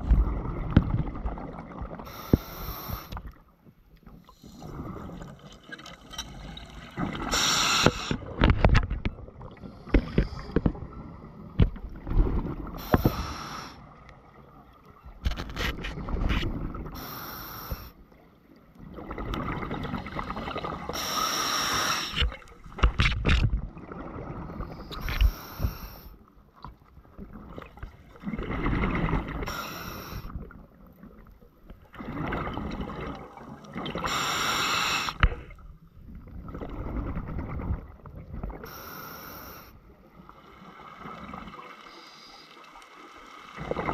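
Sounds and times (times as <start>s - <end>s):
regulator hissing inhalation: 2.1s - 3.2s, 7.3s - 8.2s, 12.8s - 13.8s, 17.0s - 18.0s, 21.0s - 22.2s, 25.0s - 26.1s, 29.5s - 30.4s, 34.0s - 35.2s, 38.7s - 39.8s
clicks and knocks from gear: 22.2s - 23.6s.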